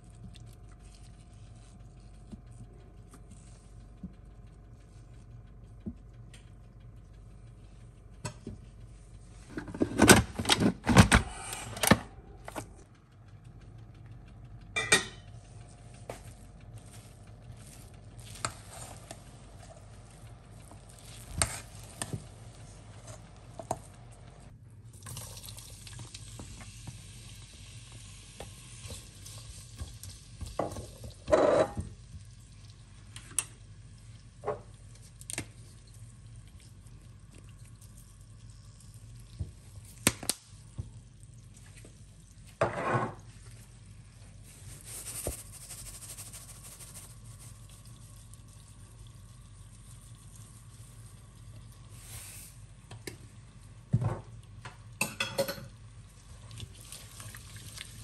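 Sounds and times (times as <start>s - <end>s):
onion and tomato sizzling in oil: 25.2s - 34.4s, 44.7s - 52.8s.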